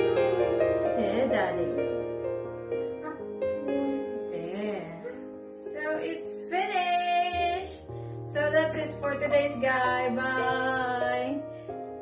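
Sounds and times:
sustained keyboard chords: 0:00.0 - 0:06.6
song with female vocals: 0:04.2 - 0:11.4.

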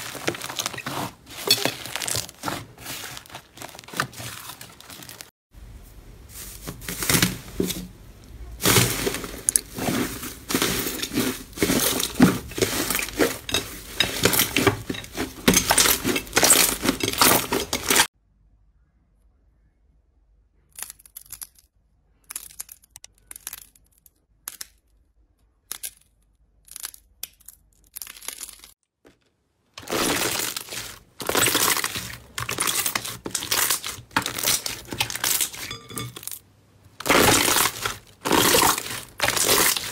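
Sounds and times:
slime crackling and popping: 0:37.0 - 0:39.9.

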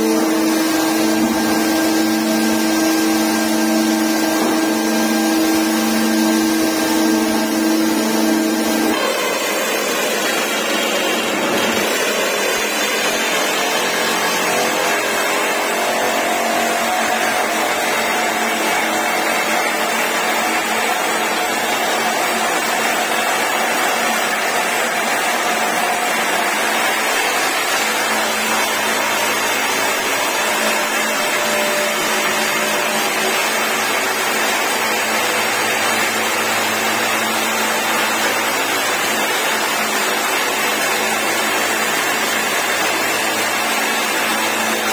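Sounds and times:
hydraulic rock drills boring: 0:00.0 - 0:44.9.

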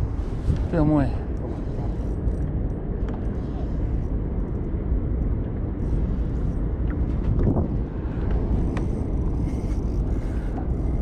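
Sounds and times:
wind buffeting microphone: 0:00.0 - 0:11.0
faint ticks: 0:08.2 - 0:11.0.

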